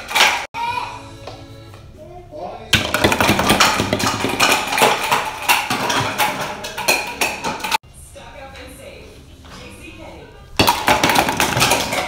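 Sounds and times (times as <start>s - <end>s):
plastic toy pins clattering on wood: 2.8s - 7.8s.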